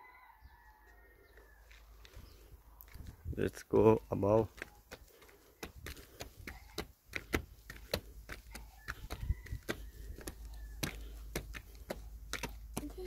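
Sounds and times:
footsteps on stone stairs: 4.3s - 13.0s.

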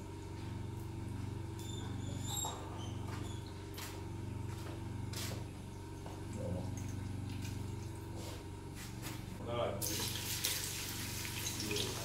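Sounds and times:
generator humming: 0.0s - 12.0s
oil splashing into pot: 9.8s - 12.0s.

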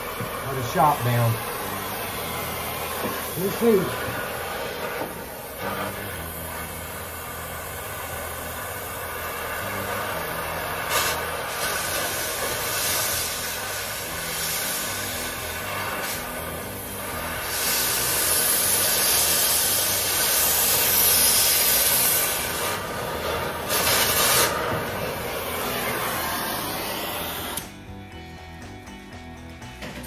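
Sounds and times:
torch flame hissing: 0.0s - 27.9s
background music: 23.7s - 30.0s.

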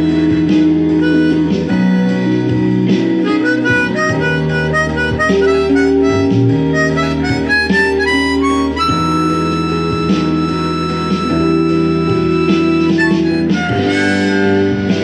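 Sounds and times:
drums: 0.0s - 15.0s
guitar backing track: 0.0s - 15.0s
harmonica playing blues: 0.0s - 15.0s.

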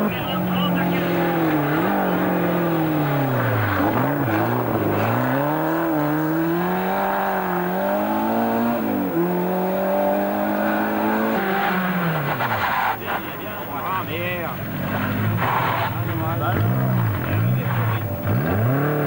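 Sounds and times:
rally car engine revving: 0.0s - 19.0s.

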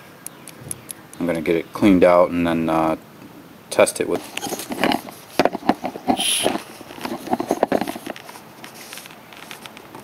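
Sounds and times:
brief high squeak: 6.2s - 6.5s.

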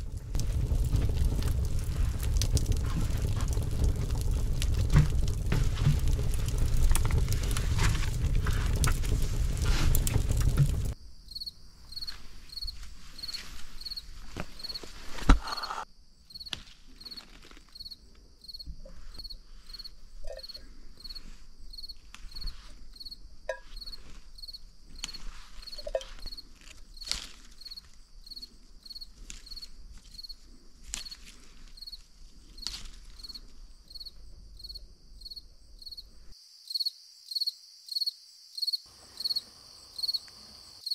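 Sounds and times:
wood fire crackling in stove: 0.0s - 11.0s
crickets chirping: 0.0s - 40.9s.

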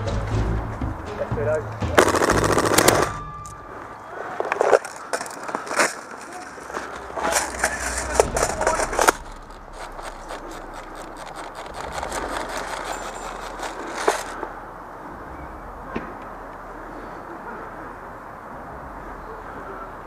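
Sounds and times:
gear and rifle knocking: 1.9s - 3.1s, 4.3s - 14.5s
leaves and twigs crunching: 2.0s - 14.6s.

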